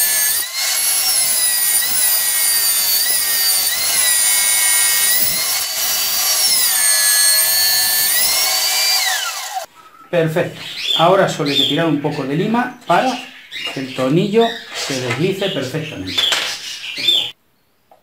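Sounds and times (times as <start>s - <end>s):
table saw cutting wood: 0.0s - 9.7s.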